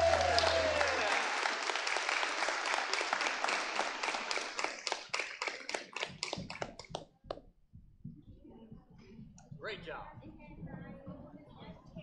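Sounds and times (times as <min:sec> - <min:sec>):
congregation applauding: 0:00.0 - 0:06.9.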